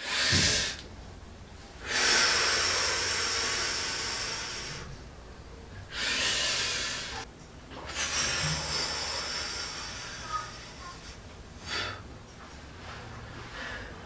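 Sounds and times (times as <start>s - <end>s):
person blowing hard: 0.0s - 0.8s, 5.9s - 7.2s.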